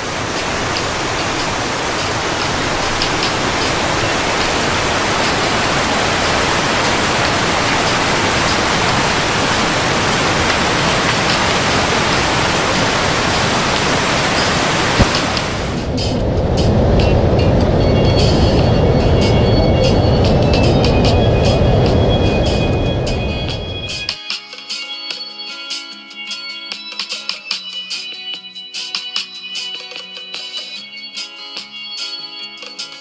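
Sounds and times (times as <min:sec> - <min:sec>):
water rushing over rocks: 0:00.0 - 0:24.2.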